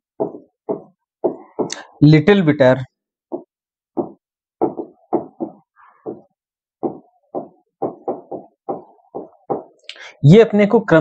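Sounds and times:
stylus tapping on touchscreen: 0.0s - 1.9s, 3.2s - 9.9s.

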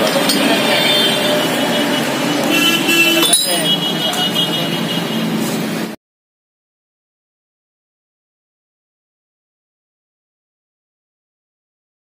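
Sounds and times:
passing traffic: 0.0s - 6.0s.

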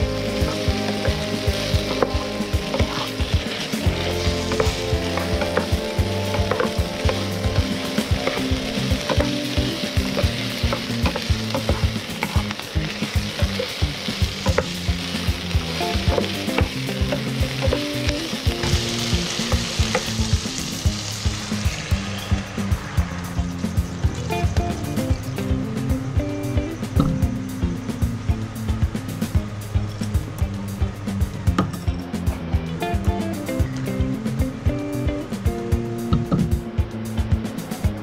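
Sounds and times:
meat and onion sizzling in pan: 0.0s - 28.8s
spatula scraping and clicking pan: 1.8s - 12.6s.

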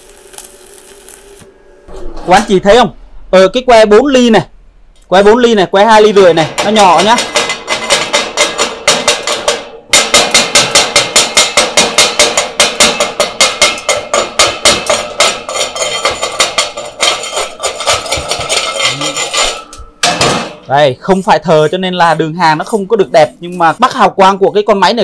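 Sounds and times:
hammer striking metal: 6.3s - 20.8s.

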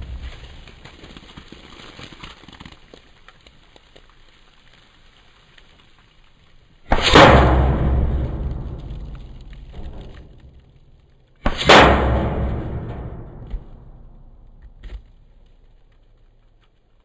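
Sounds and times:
air rifle shot: 6.9s - 9.9s, 11.4s - 14.4s.

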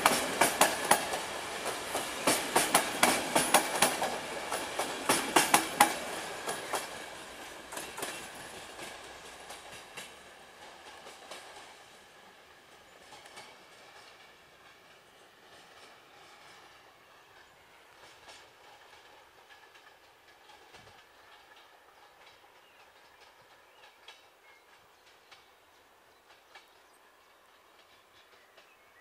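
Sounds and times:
low train rumble: 0.0s - 29.0s
train wheels clicking over rail joints: 0.0s - 29.0s.

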